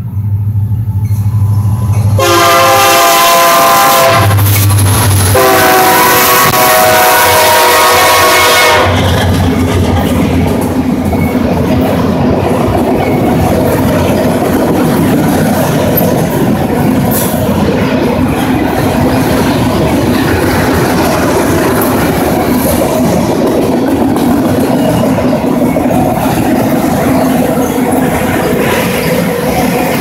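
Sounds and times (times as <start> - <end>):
freight train wheels rumbling: 0.0 - 30.0.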